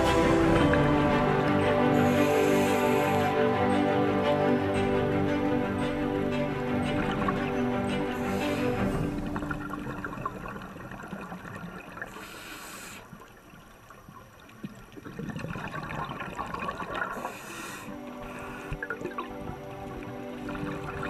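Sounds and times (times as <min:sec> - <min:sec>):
soft music notes: 0:00.0 - 0:10.7, 0:17.8 - 0:21.0
underwater bubbling hiss: 0:01.8 - 0:03.5, 0:08.0 - 0:13.6, 0:14.7 - 0:21.0.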